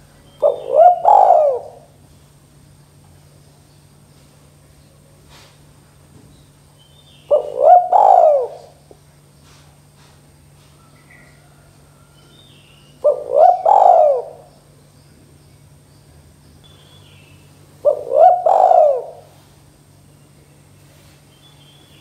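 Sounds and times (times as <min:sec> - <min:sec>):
dove cooing: 0:00.0 - 0:02.0, 0:07.3 - 0:08.9, 0:12.9 - 0:14.7, 0:17.8 - 0:19.5.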